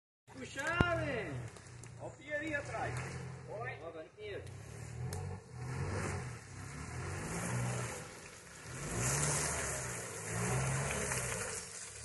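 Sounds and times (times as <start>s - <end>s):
engine revving: 0.7s - 12.0s
tyres churning mud: 4.4s - 12.0s.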